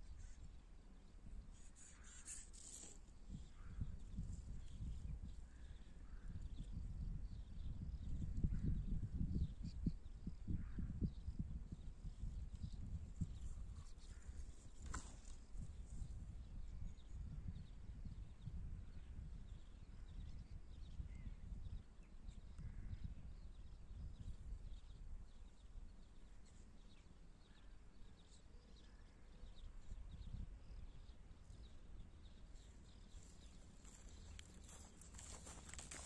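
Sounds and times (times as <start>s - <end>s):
wind rumbling on microphone: 3.2s - 25.7s, 29.5s - 36.0s.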